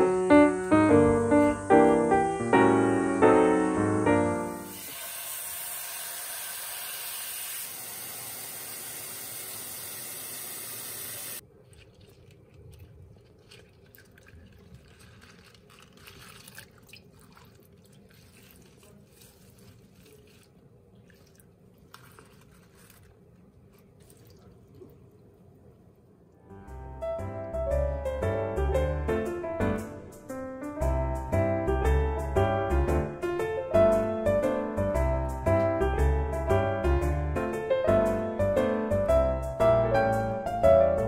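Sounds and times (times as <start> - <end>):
kitchen tap running into bowl: 4.7 - 20.5
hand swishing leaves in water: 11.4 - 25.2.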